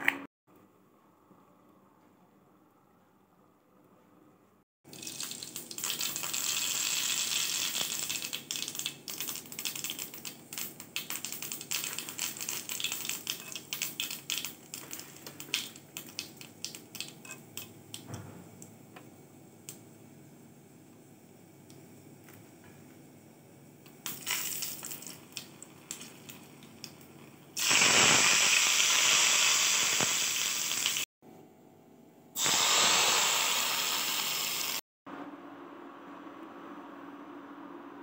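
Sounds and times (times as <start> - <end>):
mustard seeds popping in hot oil: 4.9 - 18.1, 23.8 - 31.0.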